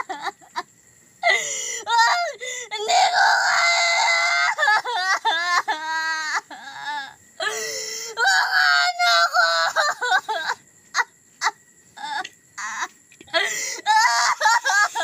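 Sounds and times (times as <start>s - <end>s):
woman sobbing: 0.0s - 15.0s
woman wailing: 12.0s - 15.0s.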